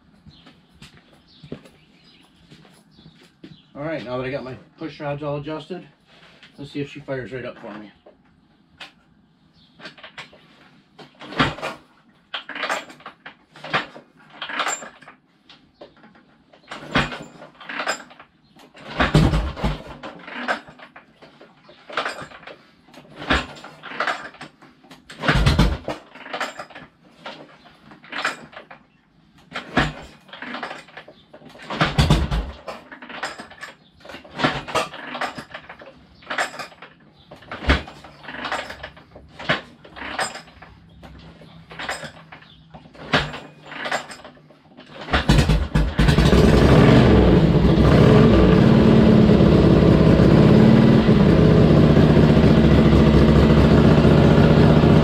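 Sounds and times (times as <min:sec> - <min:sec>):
motorcycle kick-start clatter: 0:16.6 - 0:26.8, 0:29.6 - 0:55.0.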